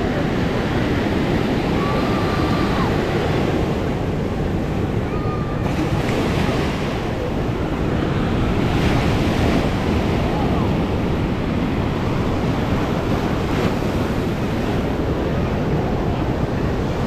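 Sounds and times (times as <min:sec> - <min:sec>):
ocean surf washing on sand: 0:00.0 - 0:17.0
wind buffeting the microphone: 0:00.0 - 0:17.0.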